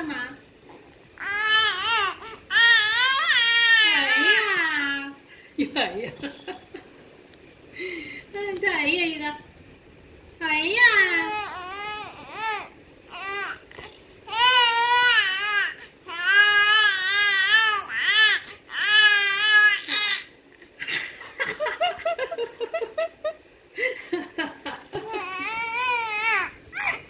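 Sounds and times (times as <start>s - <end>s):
infant crying: 1.2s - 4.8s, 11.2s - 13.6s, 14.3s - 20.3s, 25.0s - 27.0s.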